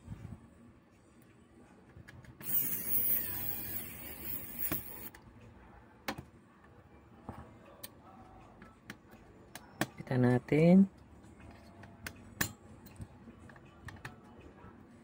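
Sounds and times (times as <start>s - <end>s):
hand tool whirring and grinding: 2.4s - 5.1s
tools clicking and tapping metal: 11.4s - 14.2s.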